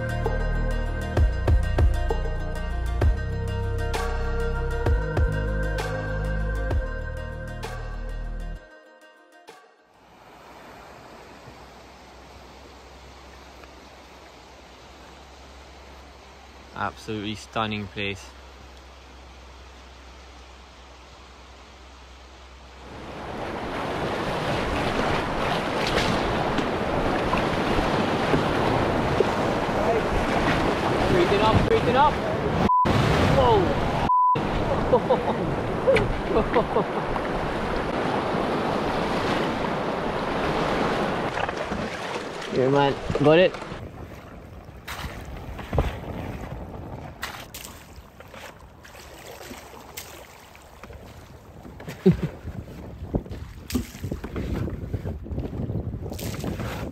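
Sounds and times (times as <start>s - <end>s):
river rapids rushing and splashing: 10.0s - 43.8s
wind buffeting microphone: 42.9s - 48.8s, 50.9s - 56.9s.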